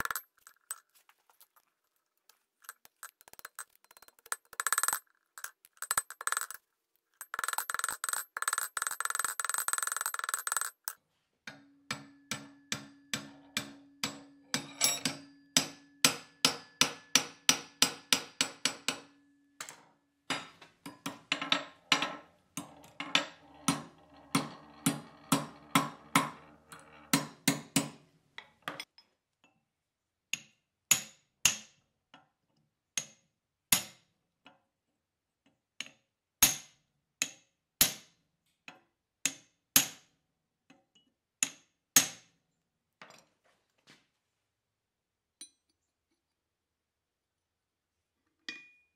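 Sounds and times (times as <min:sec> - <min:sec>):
hammer striking steel: 0:11.5 - 0:19.2.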